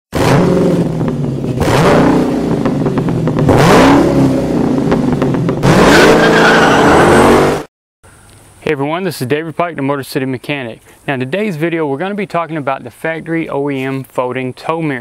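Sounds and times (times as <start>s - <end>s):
car engine idling and revving: 0.1s - 7.7s.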